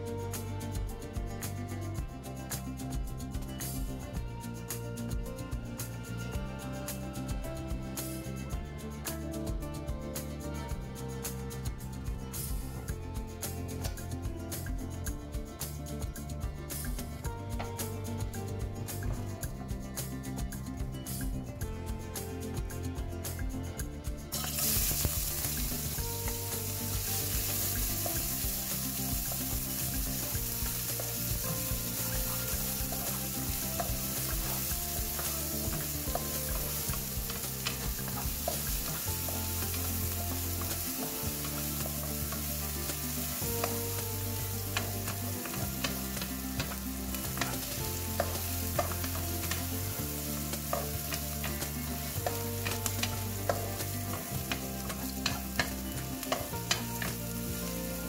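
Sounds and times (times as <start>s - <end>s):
garlic and onion sizzling in oil: 1.4s - 4.8s, 24.3s - 58.0s
wooden spatula scraping a pan: 27.0s - 58.0s.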